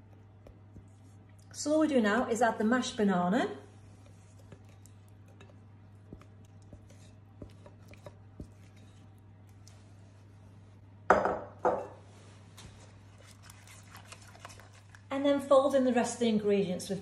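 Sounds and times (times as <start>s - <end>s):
spatula scraping glass bowl: 6.2s - 9.1s.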